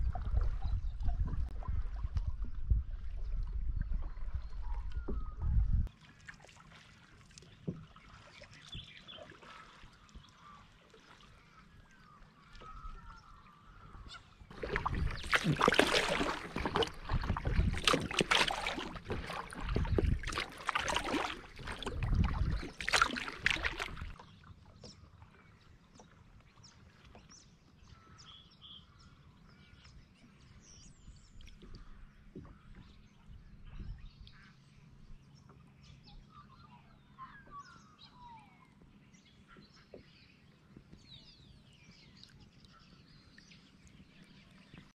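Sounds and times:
calm water: 0:00.0 - 0:45.0
paddle strokes splashing: 0:04.0 - 0:28.1.

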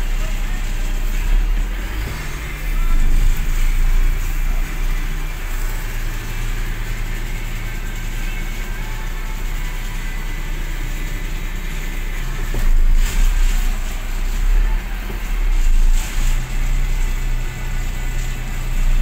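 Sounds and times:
steady low hum: 0:00.0 - 0:19.0
truck diesel engine rumbling: 0:00.0 - 0:19.0
hiss surges: 0:12.2 - 0:18.9.

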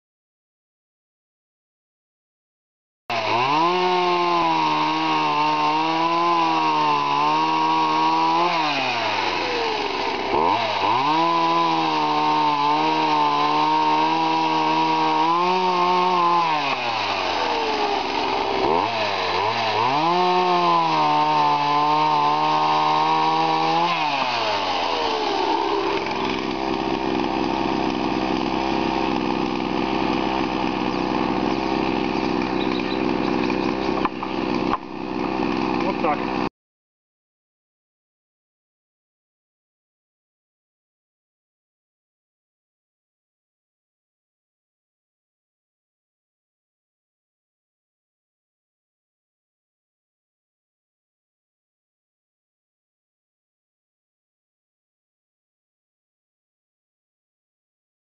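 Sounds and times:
chainsaw cutting log: 0:03.1 - 0:36.5.

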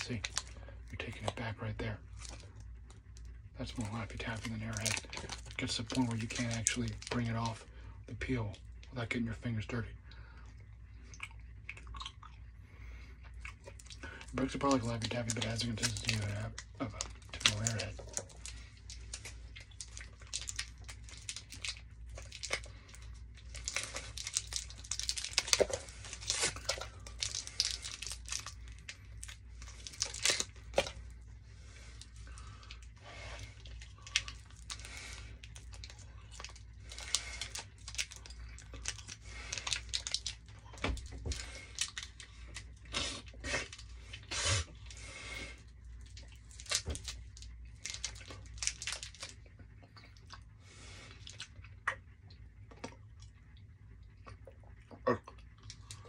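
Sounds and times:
candy wrapper crinkling and tearing: 0:00.0 - 0:01.5, 0:02.1 - 0:07.7, 0:13.3 - 0:45.0, 0:45.6 - 0:49.5.

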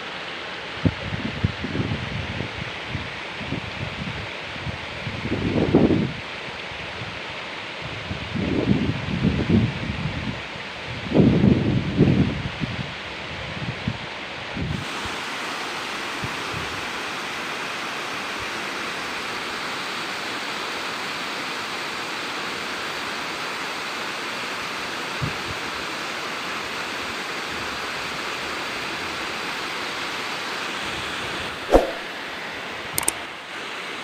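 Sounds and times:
waterfall rushing over rocks: 0:14.8 - 0:30.9.

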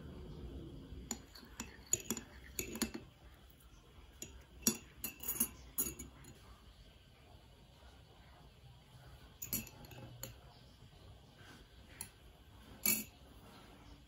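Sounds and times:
teaspoon clinking in ceramic mug: 0:01.1 - 0:03.4, 0:04.1 - 0:06.4, 0:09.4 - 0:10.4, 0:12.8 - 0:13.2.

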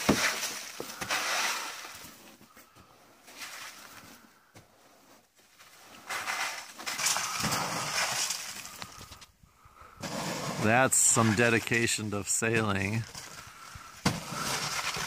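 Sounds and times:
snow clumps sliding and dropping: 0:00.0 - 0:02.3, 0:03.2 - 0:04.0, 0:05.4 - 0:09.2, 0:10.0 - 0:15.0.

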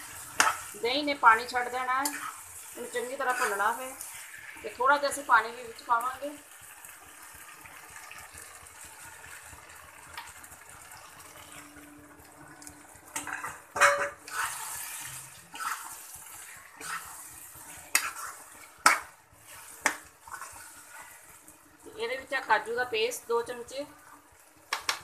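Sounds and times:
metal spoon scraping a pan: 0:00.0 - 0:04.9, 0:13.1 - 0:21.4
water hissing in hot oil: 0:00.0 - 0:11.9, 0:14.2 - 0:24.7
masala frying in a pan: 0:00.0 - 0:25.0.

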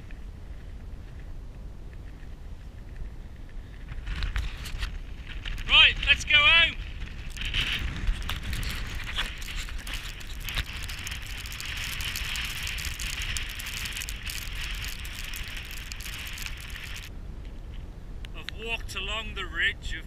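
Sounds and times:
wind rumbling on microphone: 0:00.0 - 0:20.0
rain hissing: 0:05.7 - 0:17.1
raindrops ticking: 0:07.2 - 0:17.1.

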